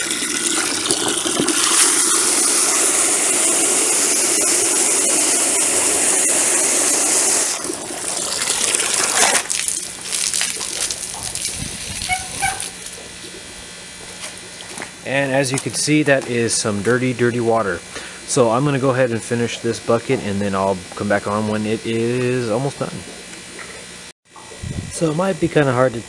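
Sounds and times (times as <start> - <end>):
hose water gushing into bucket: 0.0 - 20.4
water sloshing and splashing: 7.5 - 16.5.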